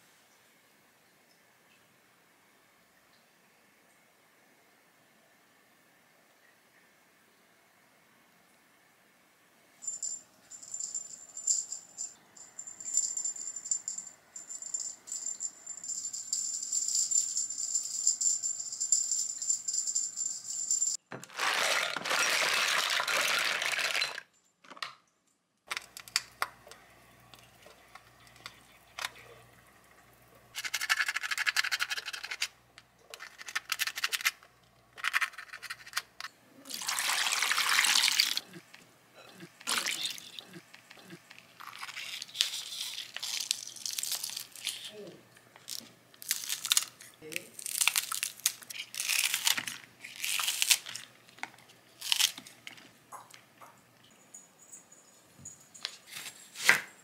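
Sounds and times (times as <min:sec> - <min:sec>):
shells clattering into glass bowl: 0:09.8 - 0:21.0
thin high steady tone: 0:09.8 - 0:21.0.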